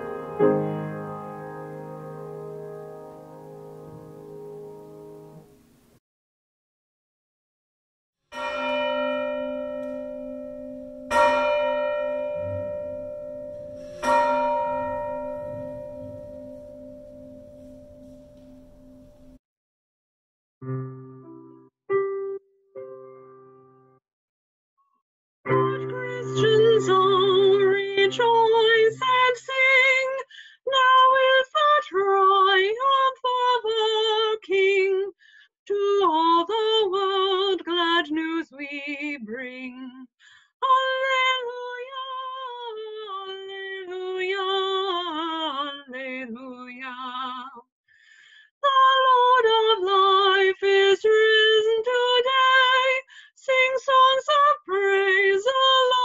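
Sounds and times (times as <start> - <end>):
woman singing unaccompanied: 25.5 - 47.6, 48.6 - 56.0.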